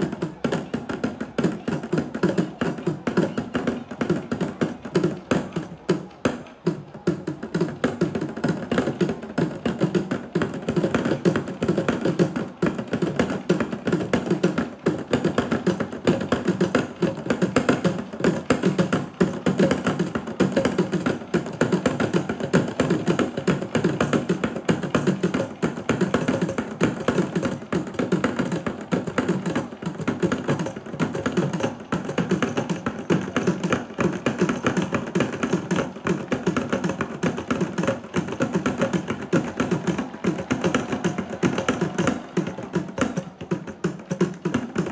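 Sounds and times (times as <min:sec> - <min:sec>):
fast folk drumming: 0:00.0 - 0:44.9.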